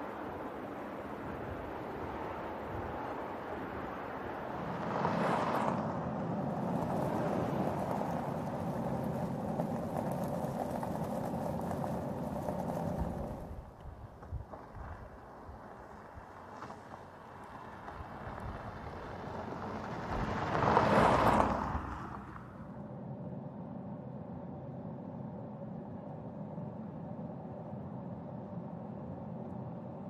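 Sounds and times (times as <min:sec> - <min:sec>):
car driving: 0:00.0 - 0:30.0.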